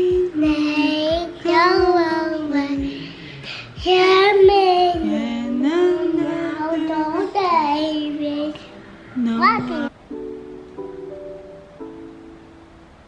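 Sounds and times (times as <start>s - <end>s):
toddler singing: 0.0s - 3.1s, 3.8s - 8.7s.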